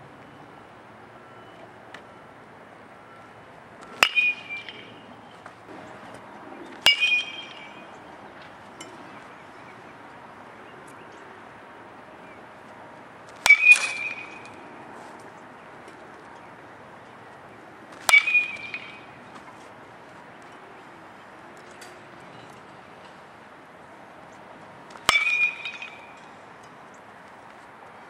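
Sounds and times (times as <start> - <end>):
metal bat hitting ball: 3.8 - 5.0, 6.7 - 8.0, 13.4 - 14.6, 18.0 - 19.1, 24.9 - 26.2.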